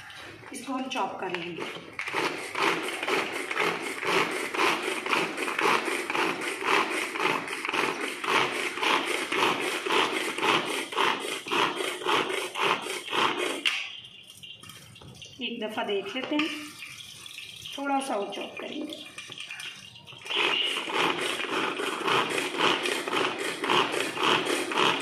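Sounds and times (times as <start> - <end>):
vegetable chopper blades whirring: 20.3 - 25.0.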